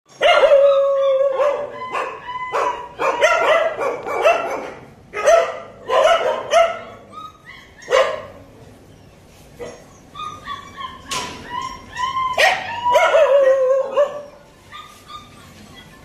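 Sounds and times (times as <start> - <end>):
puppies yipping: 0.1 - 16.0
puppy whining: 0.2 - 3.4, 6.7 - 16.0.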